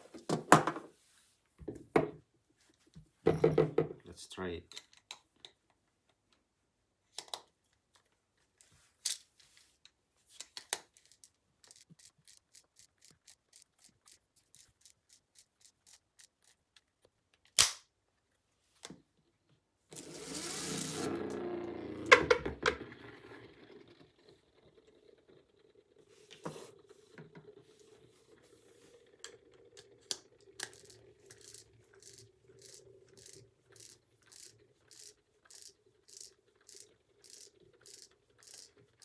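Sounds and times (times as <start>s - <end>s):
plastic parts clicking together: 7.1s - 8.2s, 9.0s - 17.9s, 29.2s - 39.0s
sharp plastic clacks: 10.4s - 17.9s
spinner spinning on wooden table: 10.9s - 16.6s, 19.9s - 39.0s
small electric motor whirring: 19.9s - 22.1s, 30.1s - 38.8s.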